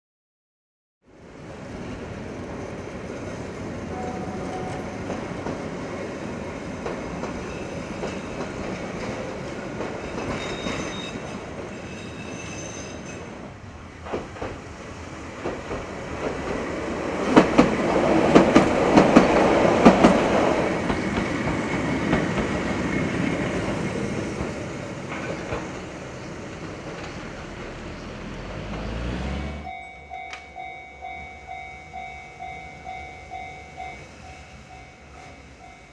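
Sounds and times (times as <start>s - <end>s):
tram rumbling past: 1.1s - 35.9s.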